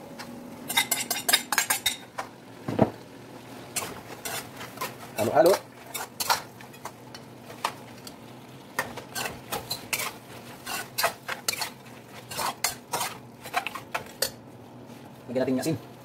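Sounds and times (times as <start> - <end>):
metal spoon scraping a pot: 9.1 - 14.4.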